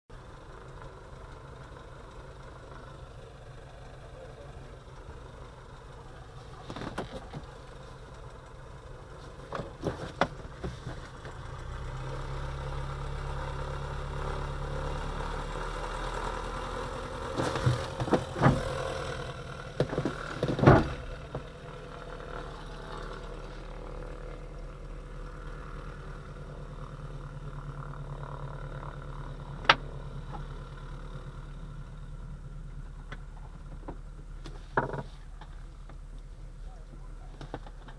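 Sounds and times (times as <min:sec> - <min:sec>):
knocks and clunks in cockpit: 0:17.4 - 0:18.8, 0:19.8 - 0:21.5, 0:33.8 - 0:35.6.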